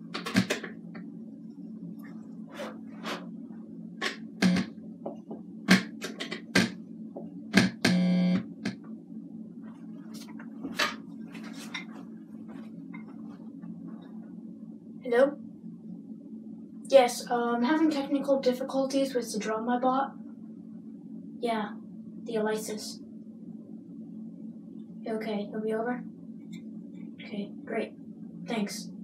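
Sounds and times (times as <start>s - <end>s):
steady low hum: 0.0s - 29.0s
short buzzing tone: 4.4s - 4.7s, 7.6s - 8.6s.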